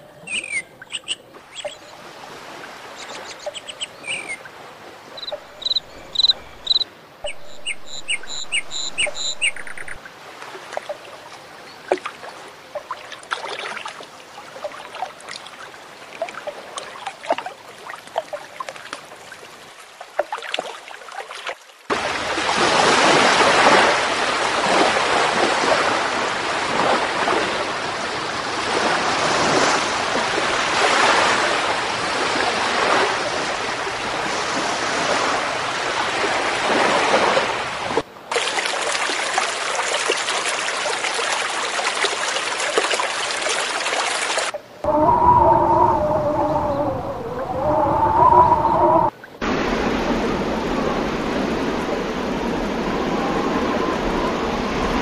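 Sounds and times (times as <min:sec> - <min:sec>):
small birds chirping: 0:00.2 - 0:01.9, 0:03.0 - 0:04.4, 0:05.2 - 0:10.0
rushing water: 0:00.8 - 0:55.0.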